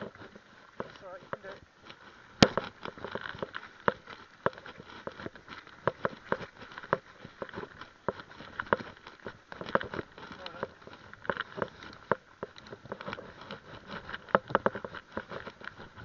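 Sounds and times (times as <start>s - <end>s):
tyres hissing on dirt: 0.0s - 5.4s
bike rattling and knocking: 0.0s - 16.0s.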